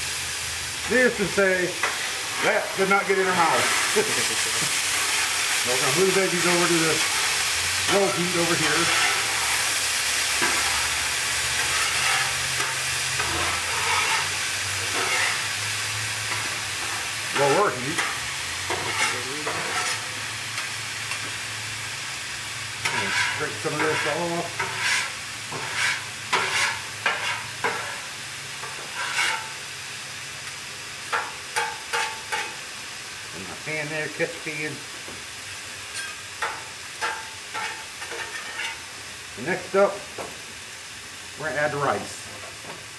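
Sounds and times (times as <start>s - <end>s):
vegetables sizzling on griddle: 0.0s - 42.9s
metal spatula scraping steel: 1.8s - 9.7s, 10.4s - 15.5s, 16.3s - 20.1s, 22.8s - 28.0s, 28.6s - 29.5s, 36.0s - 38.8s.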